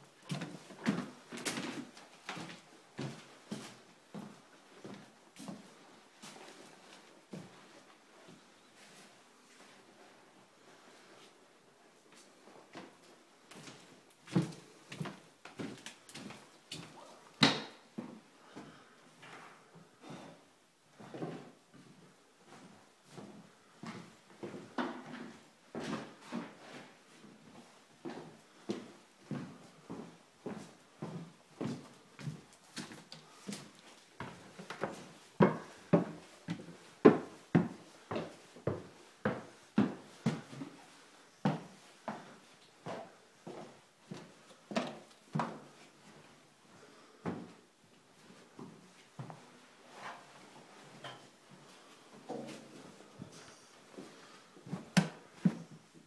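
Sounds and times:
footsteps on wooden floorboards: 0.2s - 7.7s, 12.1s - 19.4s, 28.0s - 40.8s, 41.4s - 46.3s, 48.2s - 53.3s, 53.9s - 55.9s.

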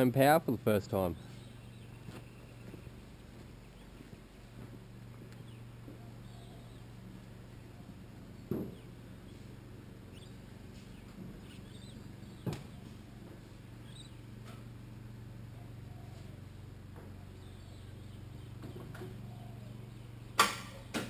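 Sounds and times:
low steady hum: 0.0s - 21.0s
faint bird chirps: 5.3s - 9.5s, 10.1s - 14.6s, 17.1s - 20.2s.

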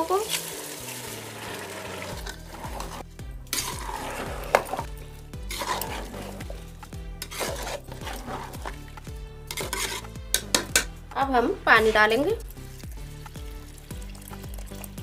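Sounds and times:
metal spoon scraping a pot: 1.3s - 10.9s.

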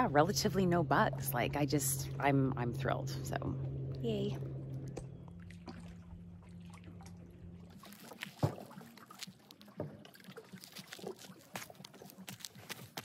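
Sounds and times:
faint low hum: 0.0s - 7.8s
footsteps on rock: 10.5s - 13.0s.

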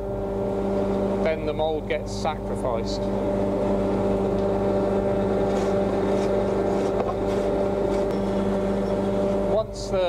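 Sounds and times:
electric hand planer running: 3.2s - 9.6s.

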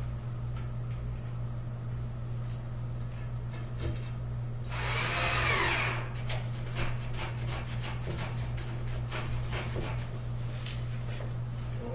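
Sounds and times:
power drill driving screw: 4.7s - 6.1s.

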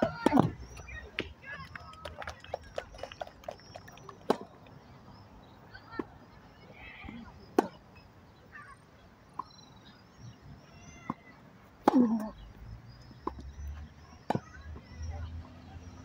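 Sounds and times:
tennis ball hit by racket: 11.8s - 12.3s.

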